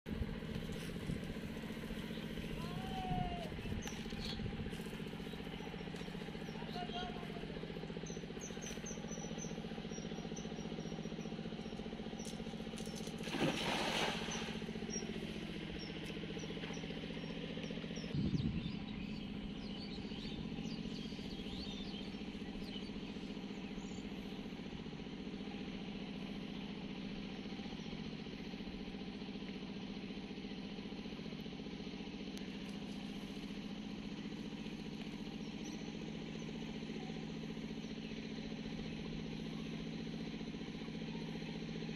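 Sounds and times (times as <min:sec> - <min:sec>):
low motor hum: 0:00.1 - 0:41.9
faint bird chirps: 0:02.0 - 0:13.0
net splashing into water: 0:12.9 - 0:14.7.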